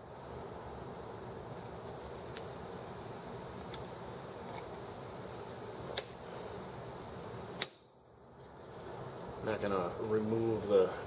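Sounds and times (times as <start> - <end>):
steady background hiss: 0.0 - 11.0
sharp clicks: 5.9 - 6.2, 7.6 - 7.9.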